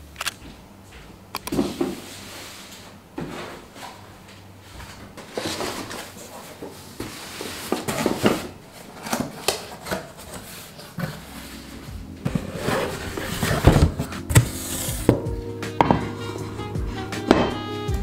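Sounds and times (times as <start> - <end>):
cardboard rubbing and scraping: 5.2 - 15.2
boxes knocking on wooden table: 12.2 - 16.2, 17.2 - 17.6.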